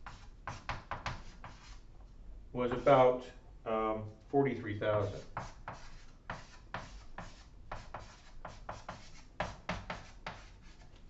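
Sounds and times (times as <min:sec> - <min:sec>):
chalk scratching on blackboard: 0:00.0 - 0:01.8, 0:02.7 - 0:03.0, 0:05.0 - 0:11.0.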